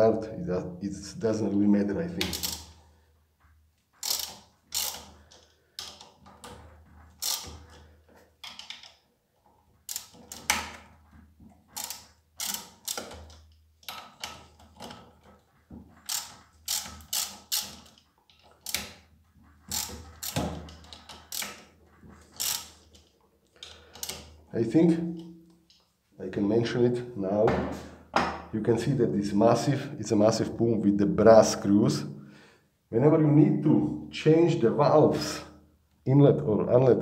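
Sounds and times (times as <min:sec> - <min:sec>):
ratchet wrench clicking: 0:02.3 - 0:02.7, 0:04.0 - 0:05.2, 0:07.2 - 0:07.8, 0:09.9 - 0:10.6, 0:11.7 - 0:14.4, 0:16.1 - 0:18.9, 0:19.7 - 0:21.7, 0:22.3 - 0:22.8.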